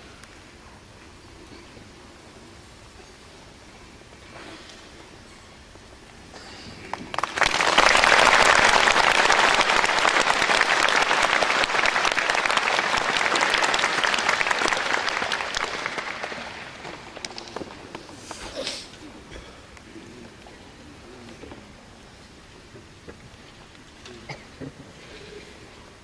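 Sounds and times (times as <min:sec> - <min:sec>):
audience applauding: 0:06.9 - 0:17.6.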